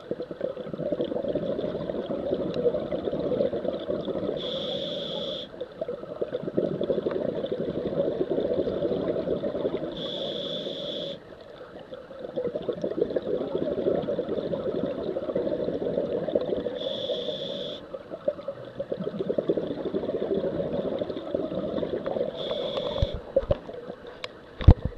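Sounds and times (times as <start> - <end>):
exhaled bubbles rushing: 0.0 - 4.6, 5.7 - 10.2, 12.1 - 17.0, 17.9 - 24.0
regulator inhale hiss: 4.4 - 5.6, 9.9 - 11.2, 16.7 - 18.0, 22.3 - 23.4.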